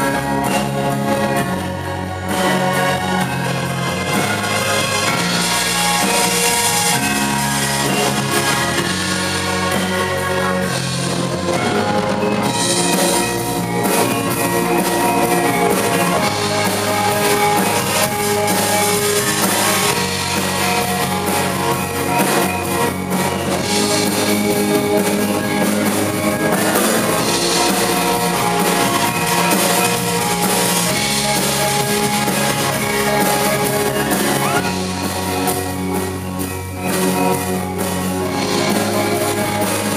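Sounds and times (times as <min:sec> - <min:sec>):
electric bass guitar: 0:00.0 - 0:39.9
gongs and metallophones: 0:00.0 - 0:39.9
rock drum kit: 0:00.0 - 0:39.9.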